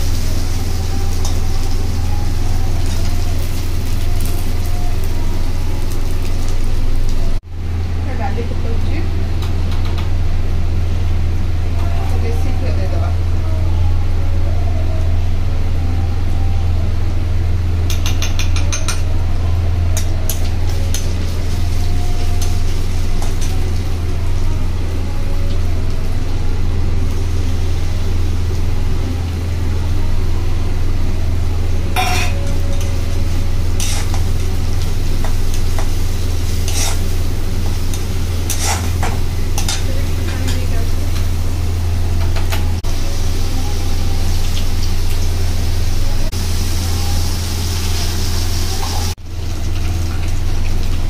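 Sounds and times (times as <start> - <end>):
metal clinks on pan: 32.0 - 32.4
paste sizzling: 32.9 - 39.7
spatula scraping in a pan: 33.7 - 34.4, 35.3 - 39.8.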